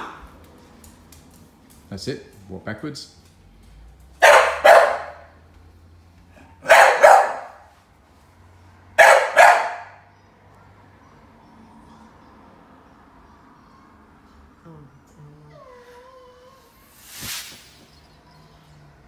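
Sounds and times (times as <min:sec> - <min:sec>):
dog barking loudly: 0:04.2 - 0:05.4, 0:06.5 - 0:07.7, 0:08.9 - 0:10.1.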